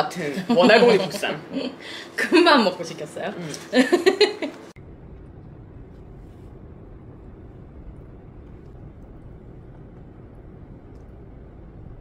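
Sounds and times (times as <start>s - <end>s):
low rumbling background noise: 0.0s - 12.0s.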